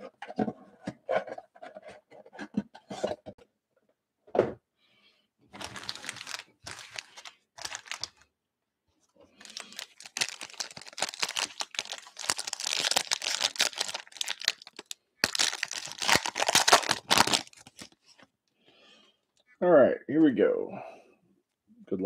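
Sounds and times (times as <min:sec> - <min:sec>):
foil pack crinkling: 0:05.6 - 0:08.2, 0:09.4 - 0:18.3.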